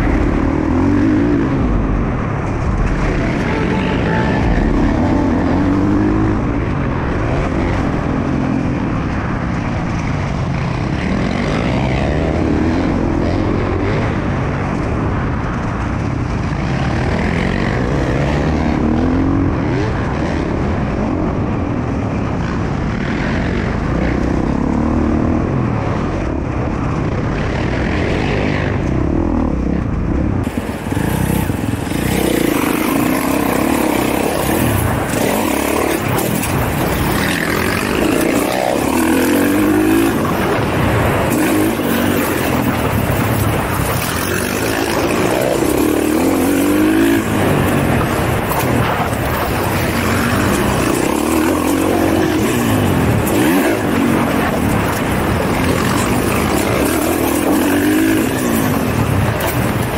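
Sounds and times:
dirt bike engine revving: 0.0 - 9.2, 30.4 - 59.9.

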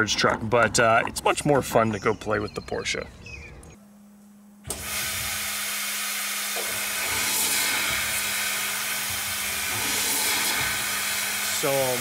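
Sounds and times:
loud steady hiss: 4.7 - 12.0.

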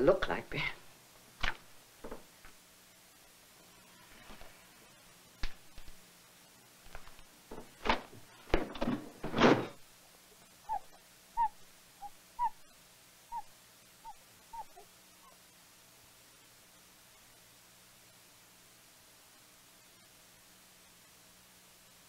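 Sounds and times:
bird calling whistled notes: 10.7 - 12.6, 13.3 - 14.8.

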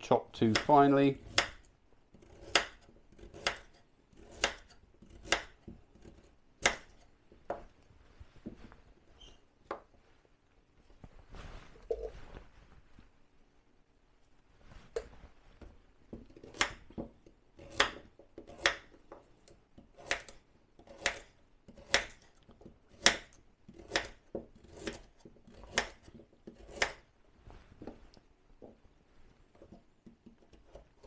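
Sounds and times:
knife chopping on wooden board: 0.5 - 7.7, 16.1 - 27.0.

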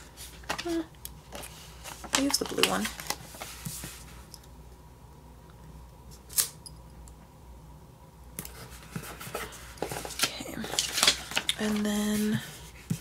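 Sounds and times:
paper sticker sheet rustling: 0.0 - 4.3, 8.5 - 13.0
sharp paper crackle: 10.0 - 12.2.

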